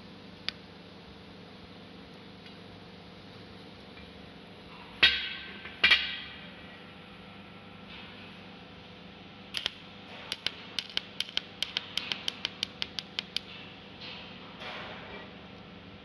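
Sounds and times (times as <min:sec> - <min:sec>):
steady low hum: 0:00.0 - 0:16.0
welding ticks: 0:09.5 - 0:13.5.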